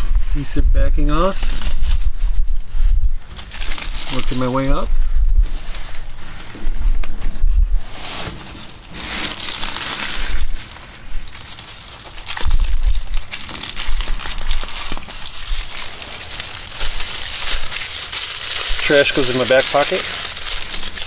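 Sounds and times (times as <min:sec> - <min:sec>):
plastic backing strip crinkling: 0:01.2 - 0:02.2, 0:03.2 - 0:04.9, 0:08.0 - 0:21.0
hands rubbing foam: 0:07.9 - 0:21.0.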